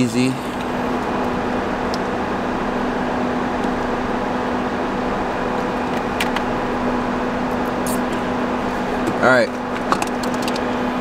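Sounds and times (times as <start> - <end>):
car cabin hum and hiss: 0.0 - 11.0.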